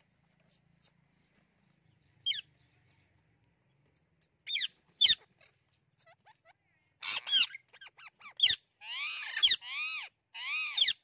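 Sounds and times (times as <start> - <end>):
parakeet shrill squawks: 7.0 - 11.0.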